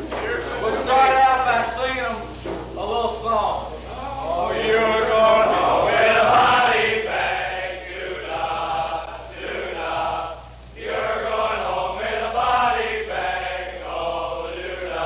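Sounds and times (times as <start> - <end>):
men singing in unison: 4.3 - 15.0.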